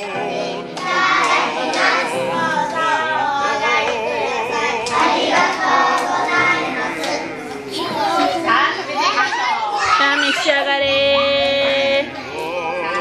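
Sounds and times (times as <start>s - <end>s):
children singing in unison: 0.0s - 9.9s.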